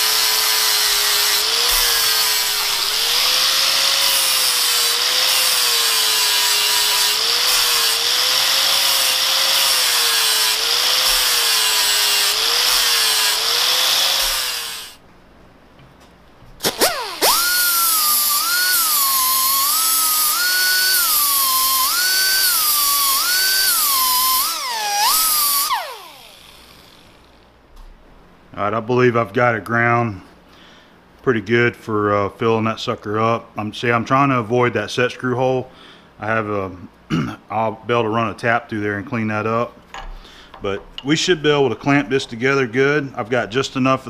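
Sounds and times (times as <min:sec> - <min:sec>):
angle grinder grinding metal: 0:00.0 - 0:15.0, 0:16.6 - 0:27.3
die grinder whining: 0:00.0 - 0:15.0, 0:16.6 - 0:27.4.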